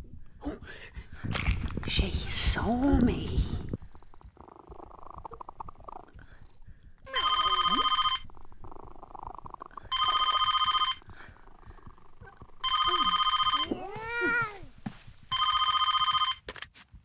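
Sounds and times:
telephone bell ringing: 7.1 - 8.3, 9.9 - 11.0, 12.6 - 13.8, 15.3 - 16.4.

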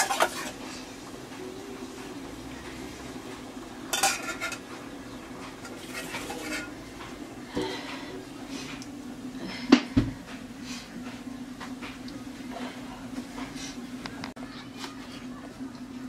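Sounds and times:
spoon clinking on steel bowls: 3.9 - 4.6, 5.6 - 6.8.

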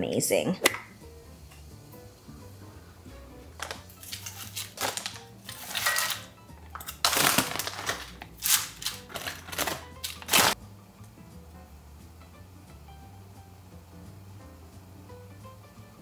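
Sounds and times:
plastic bag crinkling: 3.6 - 6.2, 6.8 - 10.6.

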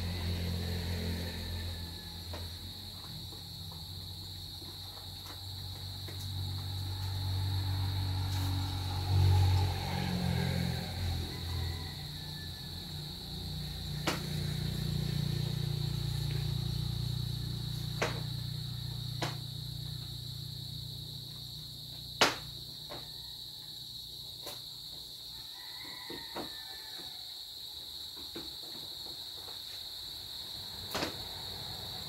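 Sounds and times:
highway traffic rumble: 0.0 - 21.4
insects trilling: 0.0 - 32.0.

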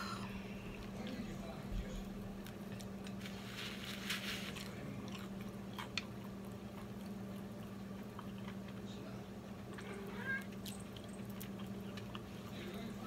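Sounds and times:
person chewing crunchy food: 2.3 - 8.8, 10.4 - 12.6.

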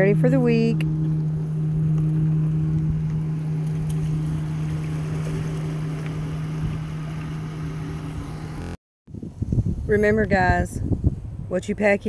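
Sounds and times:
pickup truck engine humming: 0.0 - 8.8.

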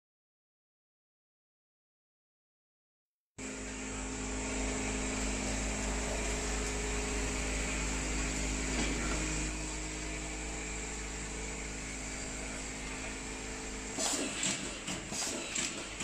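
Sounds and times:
machine humming and buzzing: 3.4 - 16.0.

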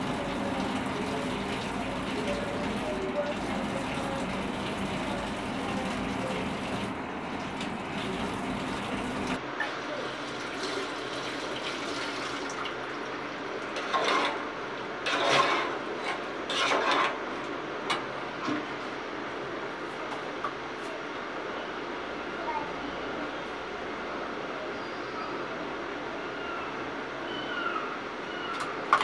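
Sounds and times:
tap water running into sink: 0.0 - 9.4, 10.3 - 12.9.

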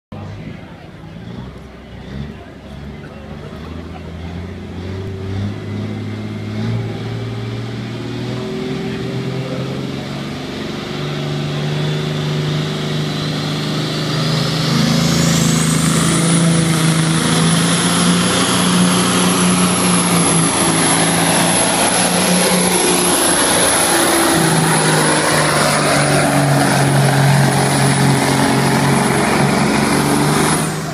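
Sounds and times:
diesel truck engine at full load: 0.1 - 30.9.

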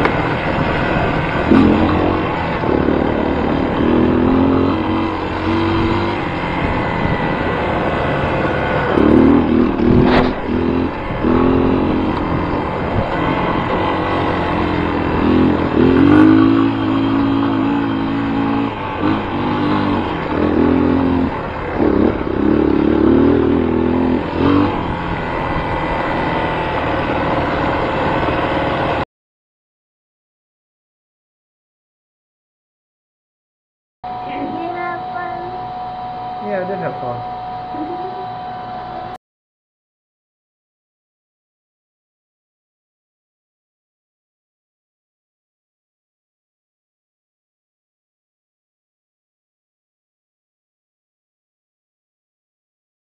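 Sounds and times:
vehicle engine revving: 0.0 - 29.0.

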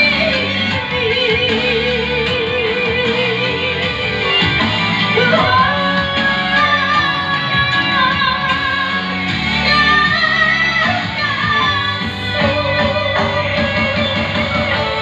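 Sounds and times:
woman singing a slow ballad: 0.0 - 4.5, 5.1 - 15.0
karaoke backing track with guitar: 0.0 - 15.0.

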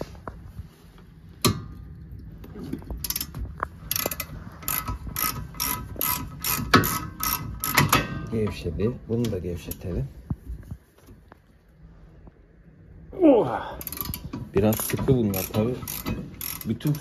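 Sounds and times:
ratchet wrench clicking: 3.9 - 8.0, 13.8 - 17.0.

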